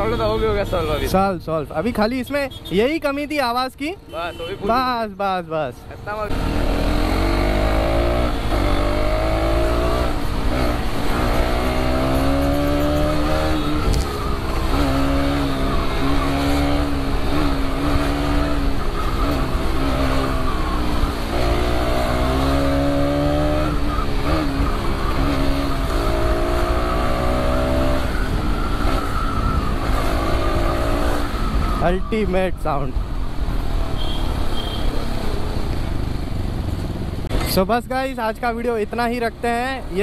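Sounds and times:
motorcycle engine revving: 6.3 - 31.7.

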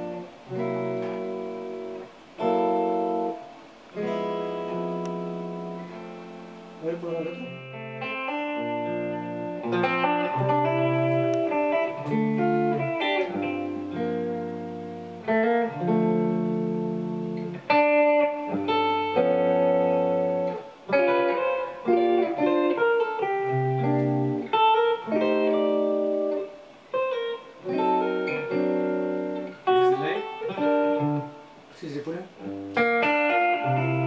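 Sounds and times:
quick single guitar notes: 0.0 - 31.7
electric guitar chords: 0.0 - 34.0.

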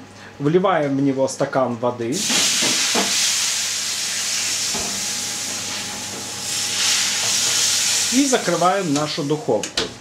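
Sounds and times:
water hissing on hot tray: 2.2 - 9.5.

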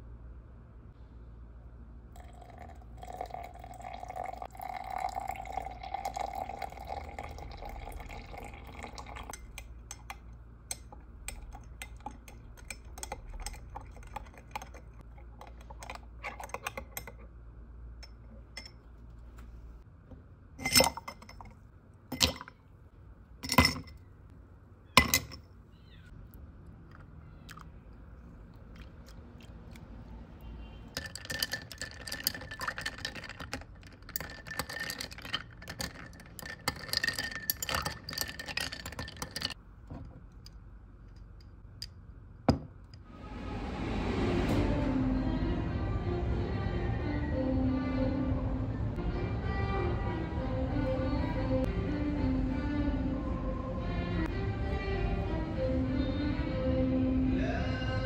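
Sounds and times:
hot water pouring into glass: 2.2 - 9.7, 31.0 - 39.6
spoon stirring clicking on glass: 8.3 - 17.3, 31.0 - 39.6
ice cubes dropped into glass: 31.0 - 39.6.

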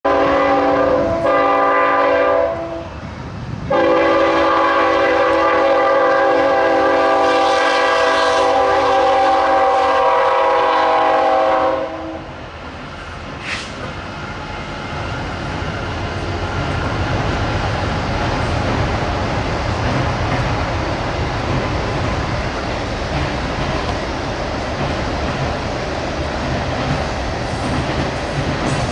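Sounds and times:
train rumble: 0.0 - 28.9
locomotive horn blasts: 0.1 - 2.9, 3.7 - 12.3.

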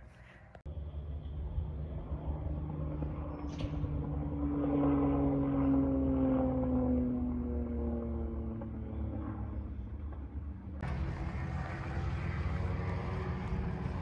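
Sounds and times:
propeller aircraft flying past: 0.4 - 14.0
steady low rumble: 8.2 - 14.0.

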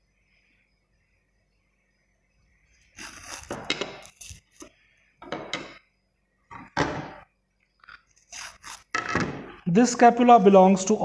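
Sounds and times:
bones scraping and knocking: 3.0 - 4.7, 7.8 - 9.6.

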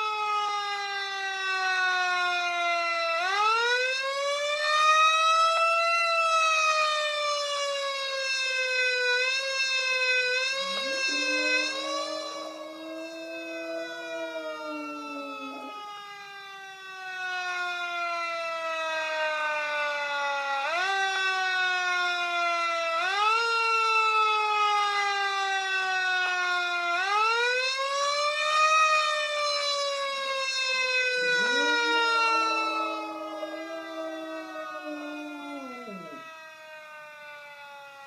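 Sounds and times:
fire truck siren wailing: 0.0 - 38.0
dog howling: 10.2 - 16.1, 30.4 - 36.3.

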